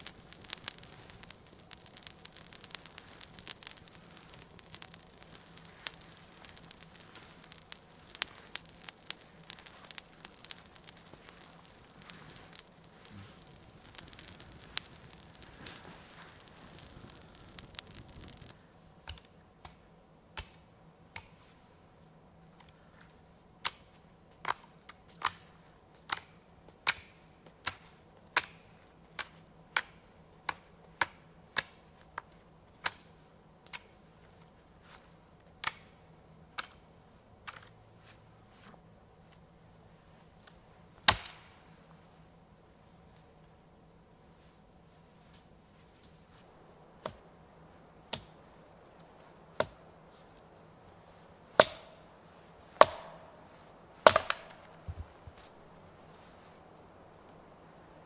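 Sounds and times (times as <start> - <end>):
campfire crackling and hissing: 0.0 - 58.0
wood chopping strikes: 52.8 - 53.2, 54.1 - 55.1.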